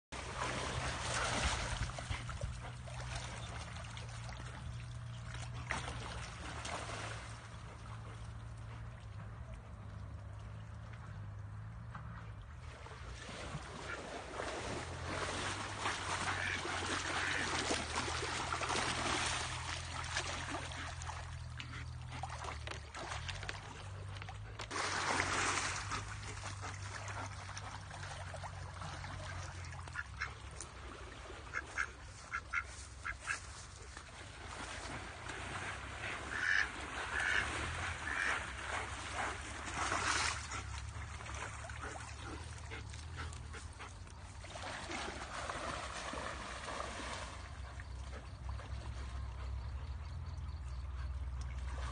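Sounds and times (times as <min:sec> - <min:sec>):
rushing water: 0:00.2 - 0:49.2
duck quacking: 0:16.3 - 0:17.5, 0:31.5 - 0:33.4, 0:36.3 - 0:38.4.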